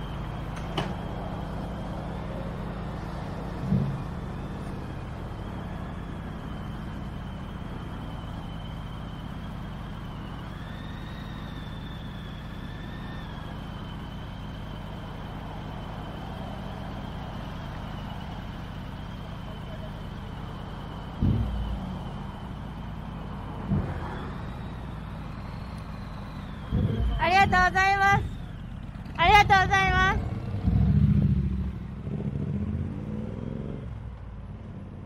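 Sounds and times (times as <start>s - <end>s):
motorcycle engines idling: 0.0s - 35.0s
sharp knock: 21.2s - 21.7s.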